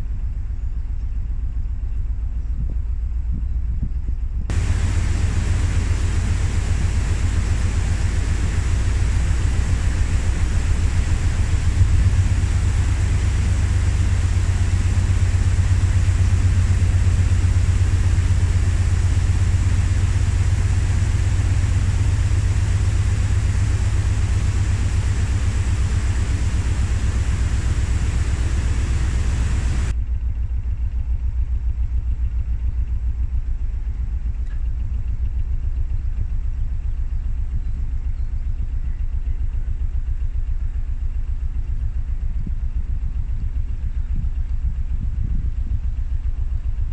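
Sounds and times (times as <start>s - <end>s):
diesel engine throbbing: 4.5s - 29.9s
steady hiss: 4.5s - 29.9s.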